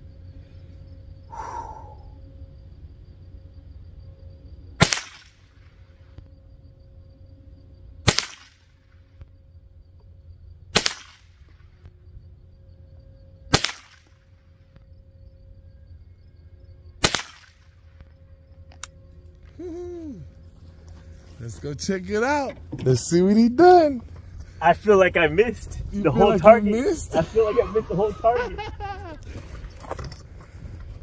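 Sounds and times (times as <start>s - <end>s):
rifle shots: 4.8s - 5.5s, 8.1s - 8.7s, 10.7s - 11.4s, 13.5s - 14.2s, 17.0s - 17.7s.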